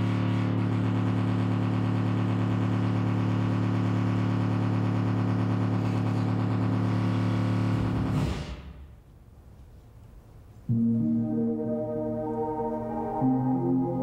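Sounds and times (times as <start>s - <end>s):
electronic drone of held tones: 10.7s - 14.0s.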